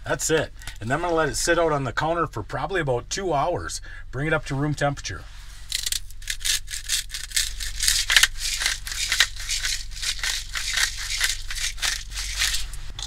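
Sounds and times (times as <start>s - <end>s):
salt and pepper grinders grinding: 5.7s - 13.0s.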